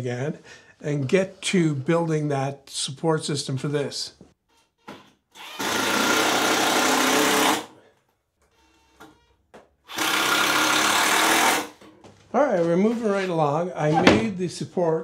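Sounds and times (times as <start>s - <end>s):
cordless drill driving screws: 5.3s - 7.8s, 9.9s - 11.8s.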